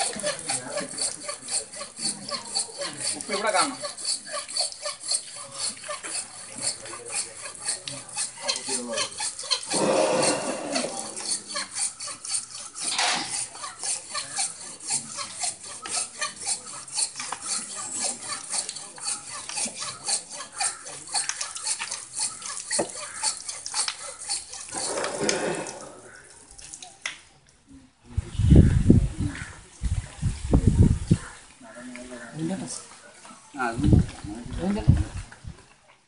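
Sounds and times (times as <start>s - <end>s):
hand saw rasping: 0.0s - 26.2s
water pouring: 24.7s - 27.0s.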